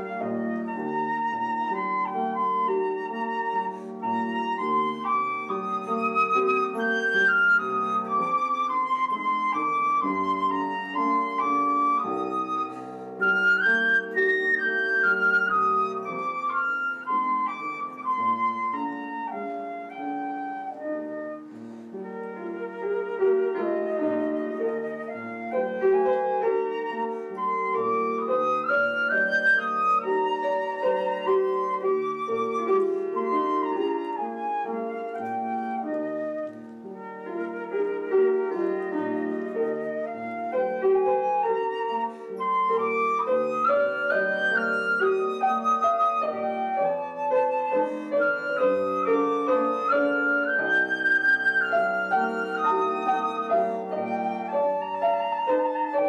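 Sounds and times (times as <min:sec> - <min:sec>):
flute melody: 0:00.0 - 0:56.0
piano chords: 0:00.0 - 0:56.0.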